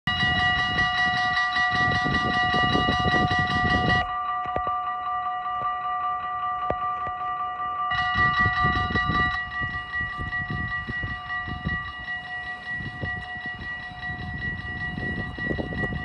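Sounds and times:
low gusty rumble: 0.1s - 4.2s, 7.9s - 16.0s
level crossing bells ringing: 0.1s - 16.0s.

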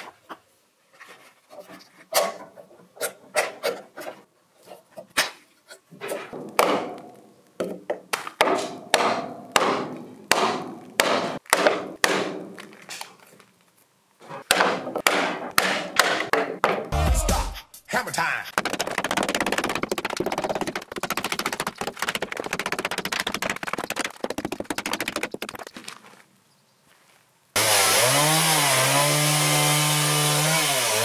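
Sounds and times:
wooden knocks and cracks: 18.5s - 26.2s.

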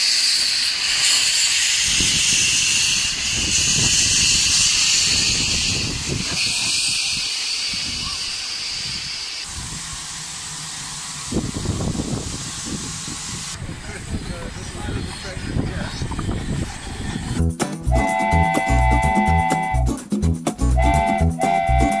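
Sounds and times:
steam hissing from locomotive: 0.0s - 17.4s
train rumbling past: 0.0s - 22.0s.

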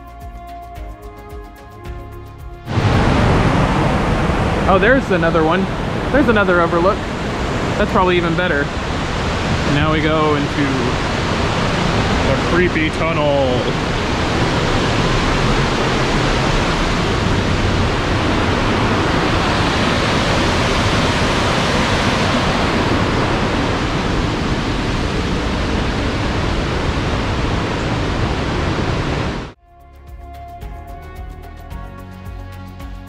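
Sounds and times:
music: 0.0s - 3.8s, 29.6s - 33.0s
whitewater rushing: 2.7s - 29.6s.

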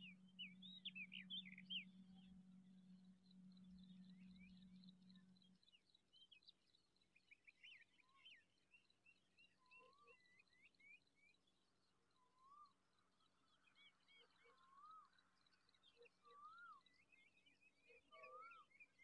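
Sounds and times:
small birds chirping: 0.0s - 11.6s.

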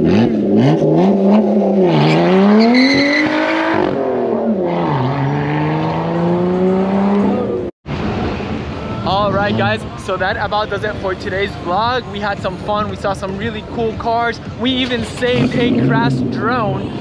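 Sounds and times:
car engine accelerating hard: 0.0s - 10.0s, 14.9s - 17.0s.

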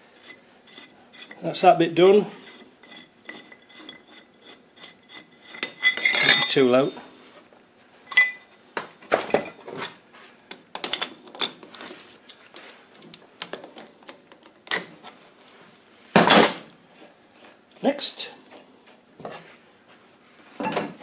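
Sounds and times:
metal tools clinking and scraping: 0.2s - 7.0s, 8.1s - 16.5s, 20.5s - 21.0s
metal tool clatter: 2.8s - 6.9s, 8.1s - 8.5s, 9.1s - 13.8s.

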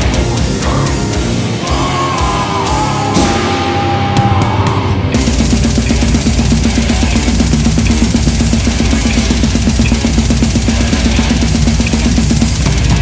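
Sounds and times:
fast heavy metal drumming: 0.0s - 13.0s
cymbal crashes: 2.7s - 13.0s.

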